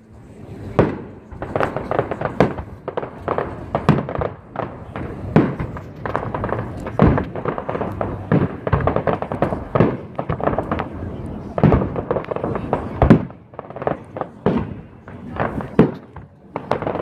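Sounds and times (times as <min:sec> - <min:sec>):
firework crackles and pops: 0:00.5 - 0:17.0
firework bangs: 0:00.6 - 0:17.0.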